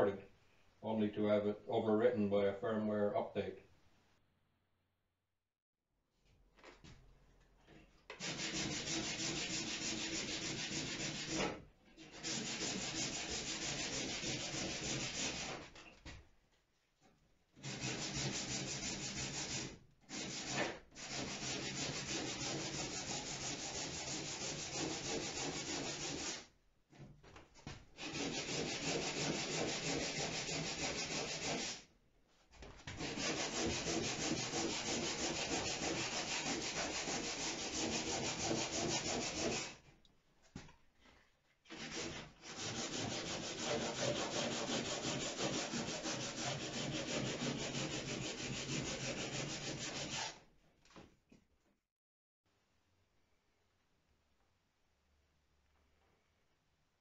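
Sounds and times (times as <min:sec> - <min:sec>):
sanding wood: 0:08.2 - 0:15.7, 0:17.6 - 0:26.5, 0:28.0 - 0:31.9, 0:33.0 - 0:39.8, 0:41.7 - 0:50.4.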